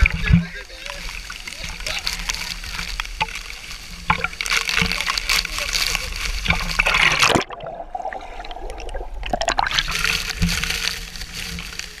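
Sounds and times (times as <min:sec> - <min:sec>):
water splashing and churning: 0:00.0 - 0:12.0.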